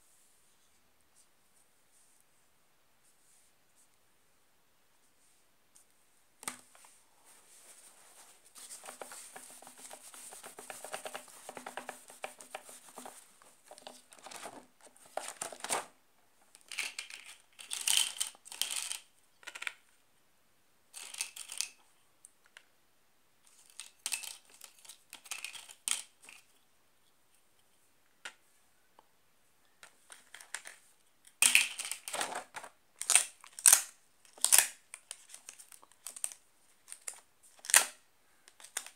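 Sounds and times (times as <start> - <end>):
pages being turned: 6.7 - 15.9
marker scratching on laminated sheet: 8.2 - 13.2.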